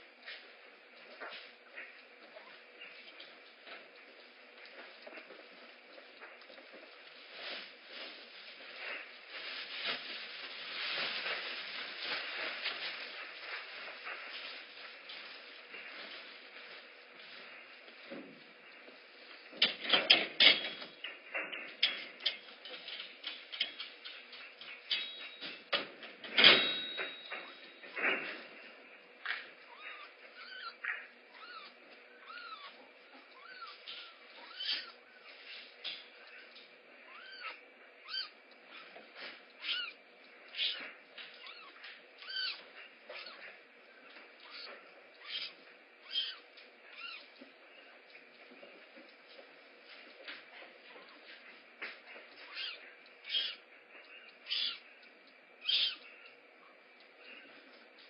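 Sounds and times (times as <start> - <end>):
kittens scuffling and rustling: 0.0 - 58.0
kitten mewing: 29.7 - 35.0, 37.0 - 39.0, 39.6 - 40.8, 41.4 - 43.6, 44.4 - 47.3, 52.4 - 53.6, 54.5 - 54.8, 55.6 - 56.1.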